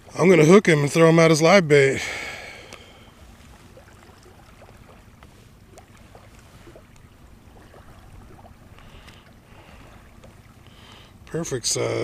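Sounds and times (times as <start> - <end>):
faint small ticks: 8.7 - 9.3.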